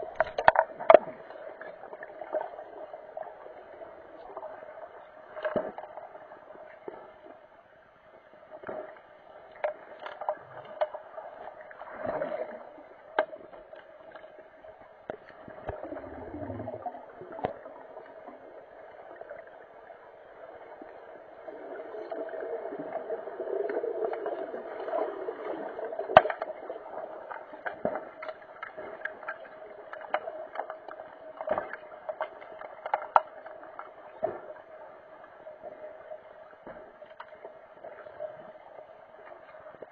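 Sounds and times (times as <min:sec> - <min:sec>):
steady underwater hum: 0:00.0 - 0:39.9
clicks and knocks of sticks: 0:00.1 - 0:01.1, 0:09.5 - 0:11.0, 0:27.6 - 0:33.9
swirling bubbling water: 0:15.4 - 0:19.6.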